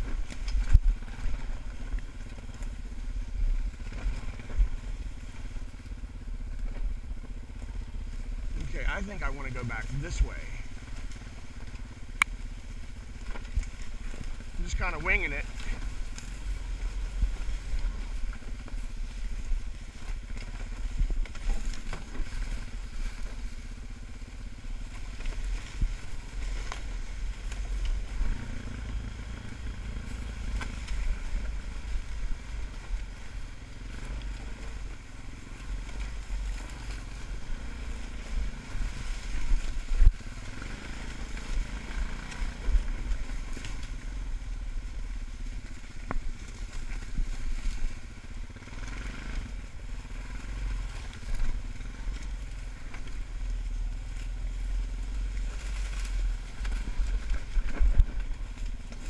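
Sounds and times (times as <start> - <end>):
atv engine running: 0.0 - 59.0.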